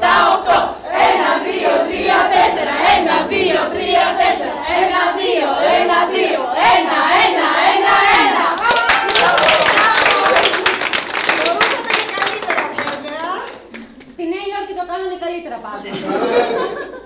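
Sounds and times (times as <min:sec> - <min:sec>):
women singing and chanting: 0:00.0 - 0:10.2.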